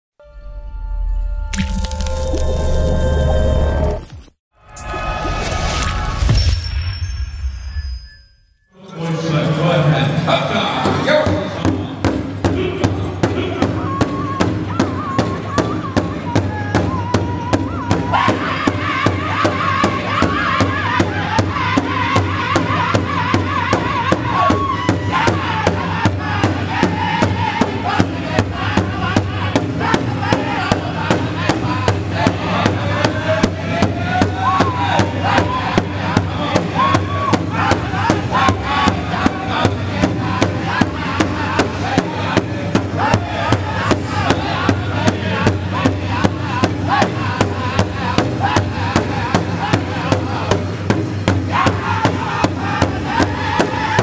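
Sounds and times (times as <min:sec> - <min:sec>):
large hide drum beating: 0:10.8 - 0:54.0
men singing in high voices: 0:12.5 - 0:54.0.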